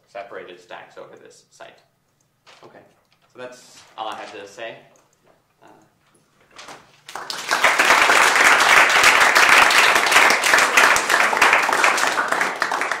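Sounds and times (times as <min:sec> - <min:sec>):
audience applauding: 0:07.1 - 0:13.0.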